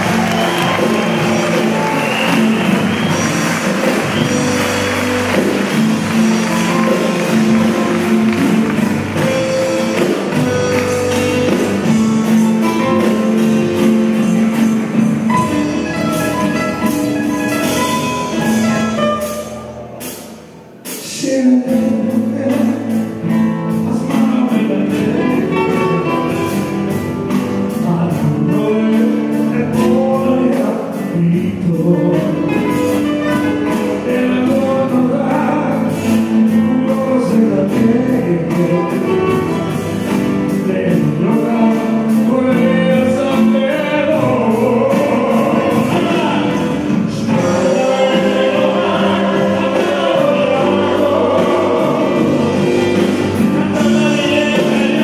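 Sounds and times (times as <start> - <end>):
acoustic guitars strummed: 0.0 - 55.0
person singing: 20.8 - 27.0, 27.7 - 55.0.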